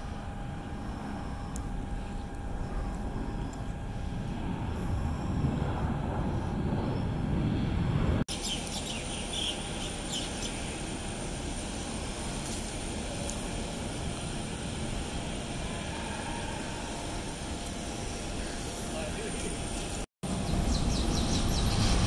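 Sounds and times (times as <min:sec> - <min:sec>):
distant jet engine noise: 0:00.0 - 0:22.0
faint high whine: 0:00.0 - 0:22.0
jet engines rumbling: 0:00.0 - 0:22.0
bird chirps: 0:08.3 - 0:10.7.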